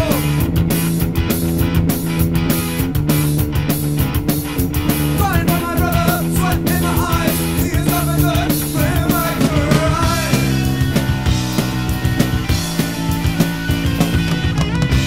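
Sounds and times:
bass guitar: 0.0 - 15.0
drum kit: 0.0 - 15.0
electric guitar: 0.0 - 15.0.

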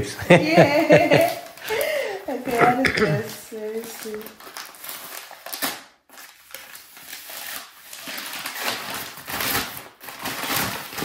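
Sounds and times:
packing wrap crinkling: 1.0 - 11.0.

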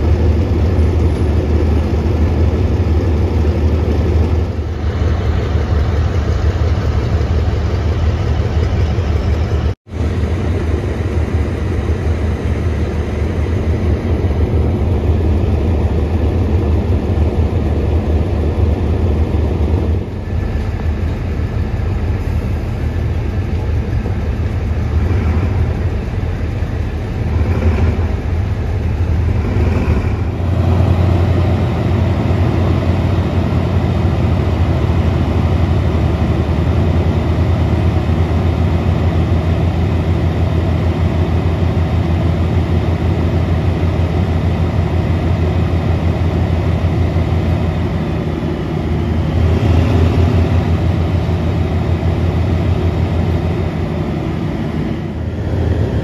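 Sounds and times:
diesel locomotive engine running: 0.0 - 56.0.

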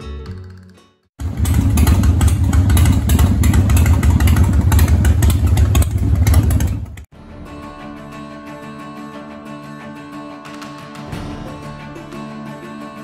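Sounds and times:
motorcycle engine running steadily: 1.2 - 7.1.

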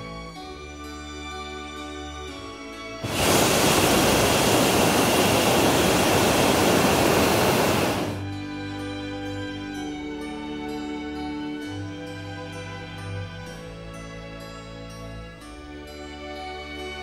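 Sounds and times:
propane burner blast: 3.0 - 8.2
background music: 8.2 - 17.0.

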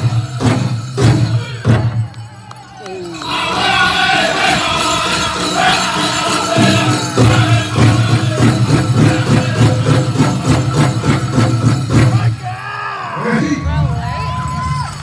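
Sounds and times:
steady drumbeat: 0.0 - 2.4, 3.2 - 12.6
group singing chant-like song: 3.2 - 12.3.

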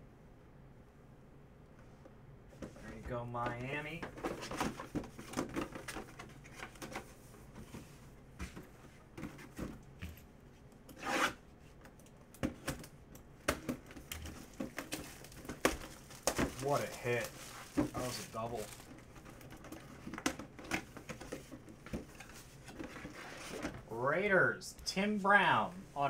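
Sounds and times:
plastic wrap rustling: 13.9 - 23.8.

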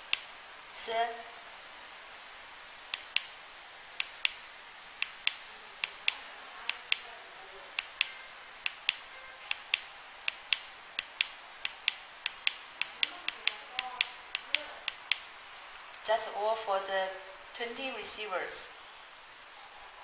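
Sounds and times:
sharp paired clicks: 0.0 - 0.3, 2.9 - 3.4, 4.0 - 7.1, 7.8 - 15.3.

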